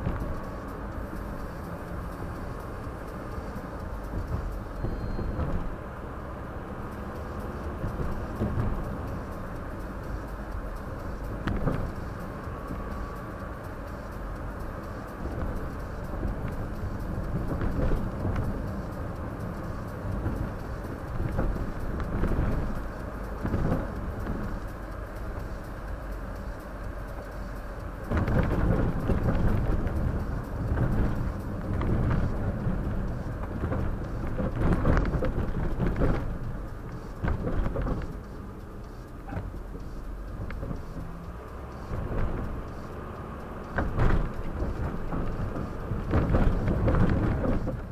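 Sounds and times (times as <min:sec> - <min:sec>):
road and tyre rumble: 0:00.0 - 0:47.9
knocks from road bumps: 0:43.7 - 0:47.9.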